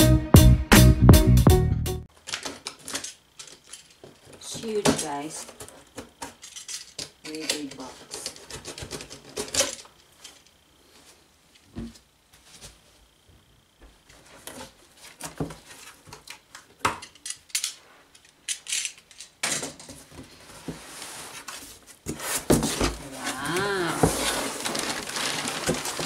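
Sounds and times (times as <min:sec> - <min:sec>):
cardboard box being opened: 0:22.1 - 0:26.0.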